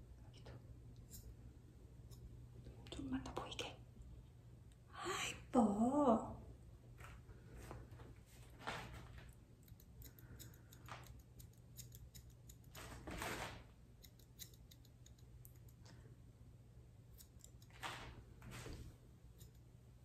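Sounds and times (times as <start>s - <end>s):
scissors snipping fur: 9.6s - 12.8s, 13.9s - 15.8s, 17.1s - 17.8s, 19.3s - 19.7s.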